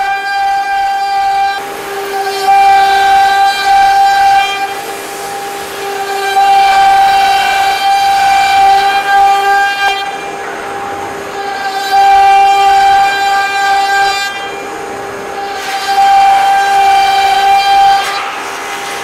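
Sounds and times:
router spindle whining cutting wood: 0.0 - 19.0.

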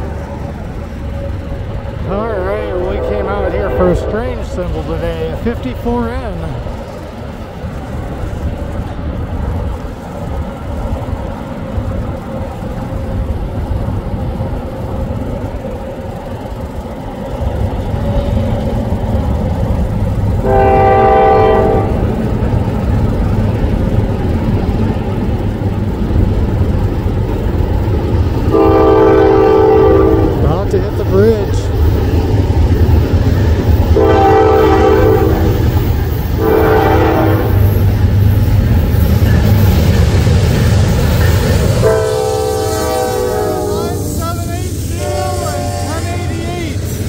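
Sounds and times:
diesel locomotive rumble: 0.0 - 47.0
train horn blast: 2.6 - 4.6, 20.4 - 22.2, 28.5 - 30.6, 34.0 - 35.6, 36.3 - 37.7, 41.8 - 46.4.

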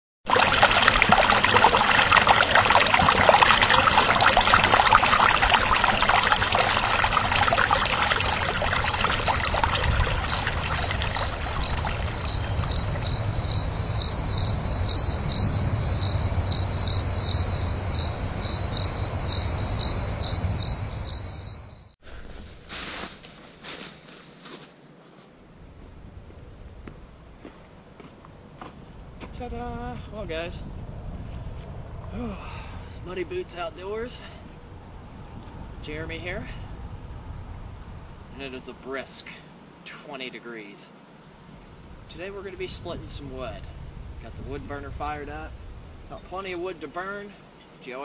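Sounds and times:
cricket chirping: 3.2 - 22.0
rushing background hiss: 5.6 - 48.0.

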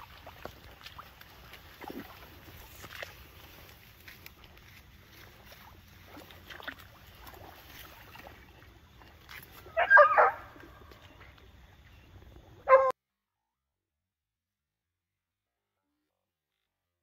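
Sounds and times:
hound baying: 9.7 - 10.7, 12.6 - 12.9.

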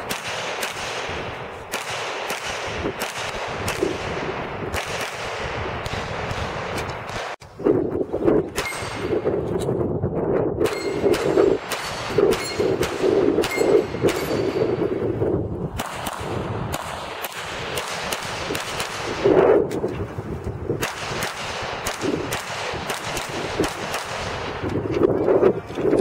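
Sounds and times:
pistol shots: 0.0 - 7.4, 10.6 - 14.9, 15.8 - 19.3, 20.8 - 24.7.

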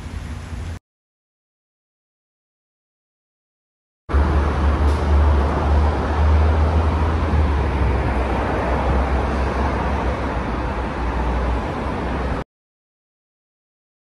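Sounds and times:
deep traffic rumble: 4.1 - 12.4
cars passing on busy road: 4.1 - 12.5.

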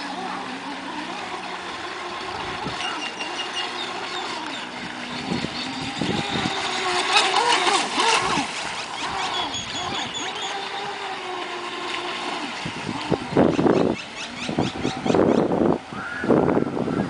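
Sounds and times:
rc boat motor whining: 0.0 - 17.0.

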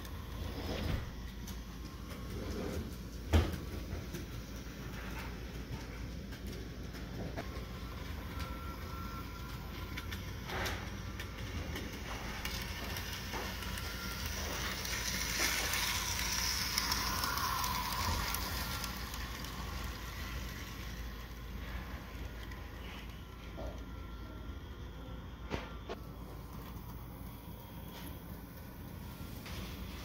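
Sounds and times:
model train motor whirring: 7.3 - 24.2.

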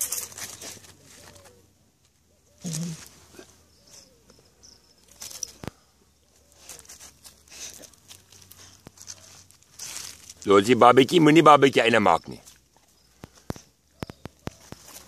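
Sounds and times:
dog paws scuffing on gravelly soil: 0.0 - 1.6, 6.3 - 11.5, 14.1 - 15.0.

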